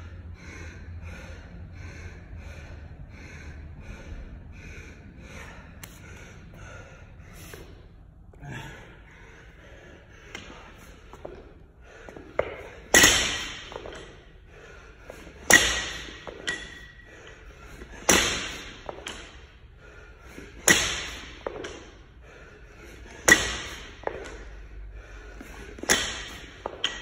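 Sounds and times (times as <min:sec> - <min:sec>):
barbell bouncing: 0:12.2 - 0:14.3, 0:15.1 - 0:19.5, 0:20.5 - 0:22.0, 0:23.0 - 0:24.5, 0:25.4 - 0:27.0
barbell clanging on floor: 0:12.4 - 0:14.2, 0:15.4 - 0:17.0, 0:23.2 - 0:24.3, 0:25.8 - 0:27.0.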